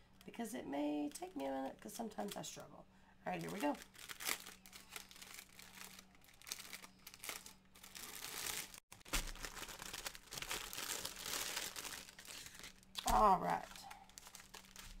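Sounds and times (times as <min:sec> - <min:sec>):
plastic bag crinkling: 0:03.3 - 0:15.0.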